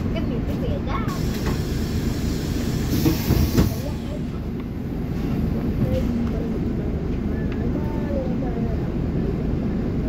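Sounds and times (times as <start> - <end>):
bus engine and road rumble: 0.0 - 10.0.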